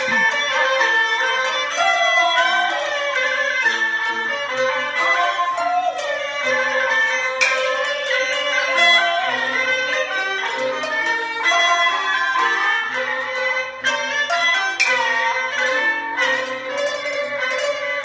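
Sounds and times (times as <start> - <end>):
chinese opera string ensemble: 0.0 - 18.0
sharp clack: 7.3 - 8.0, 14.7 - 18.0.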